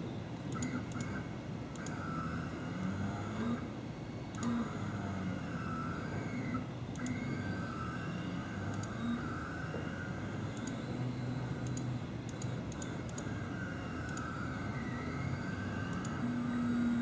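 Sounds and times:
stepper motors whining: 0:04.3 - 0:17.0.

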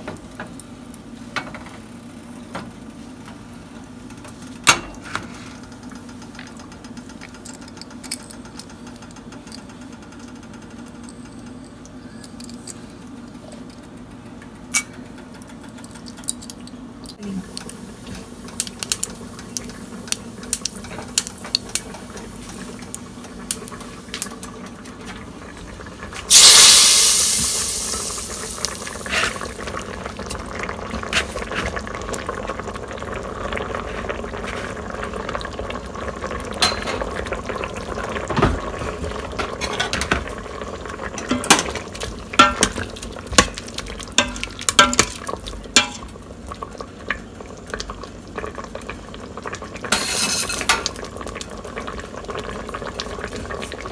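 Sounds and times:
hot oil spluttering and popping: 0:15.4 - 0:34.4, 0:39.2 - 0:53.9
loud sizzle: 0:17.1 - 0:53.9.

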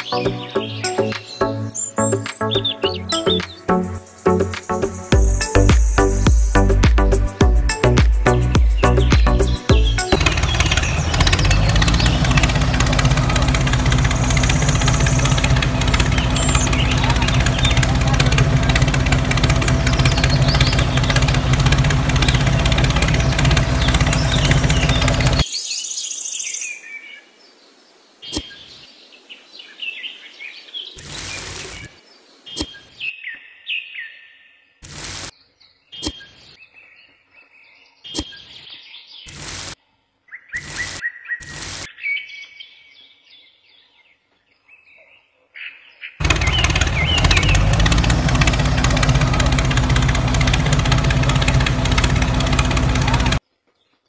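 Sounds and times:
small birds chirping: 0:00.0 - 0:07.1, 0:07.7 - 0:54.0
tractor engine chugging: 0:08.8 - 0:25.4, 0:46.2 - 0:53.4
sharp clicks: 0:40.6 - 0:41.9.

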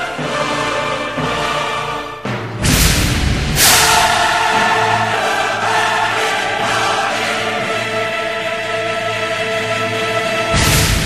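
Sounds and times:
choral music: 0:00.0 - 0:11.0
deep booming hit: 0:02.5 - 0:04.8, 0:10.5 - 0:11.0
crash: 0:02.6 - 0:04.8, 0:10.6 - 0:11.0.

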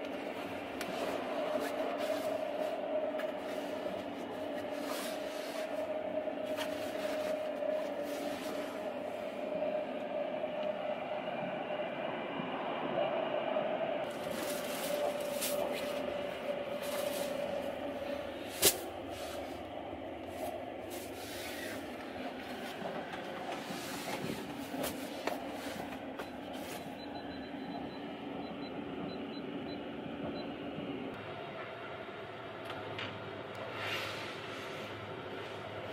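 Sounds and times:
train rumble and hiss: 0:00.0 - 0:35.9
bedsheets rustling: 0:00.2 - 0:09.2, 0:14.1 - 0:19.7, 0:20.3 - 0:27.0.

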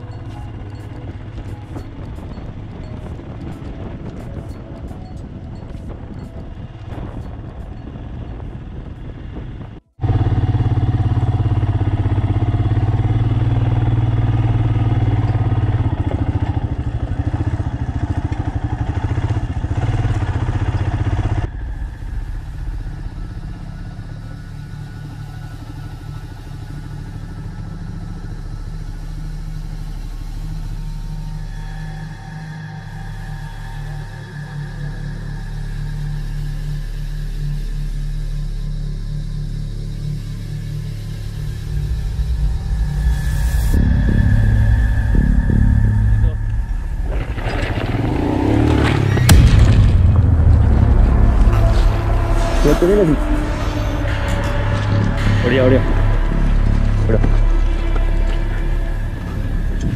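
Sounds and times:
wind on microphone: 0:00.0 - 0:10.6, 0:41.6 - 0:59.9
motorcycle engine running: 0:00.0 - 0:37.6, 0:38.3 - 0:59.9.

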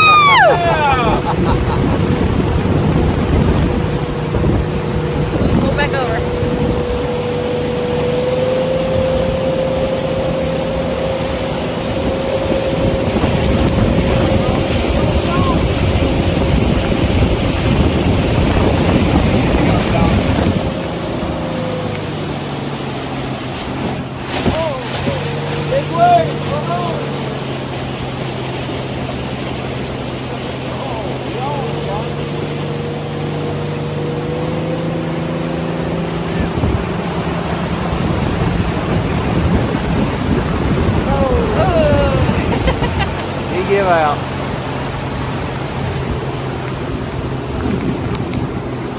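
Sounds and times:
motorboat engine running: 0:00.0 - 0:48.9
rush of boat wake: 0:00.0 - 0:48.9
water noise: 0:00.0 - 0:48.9
wind: 0:00.0 - 0:48.9.

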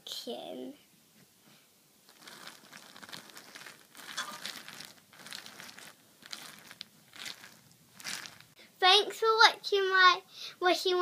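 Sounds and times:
soft rustling: 0:01.1 - 0:08.6.

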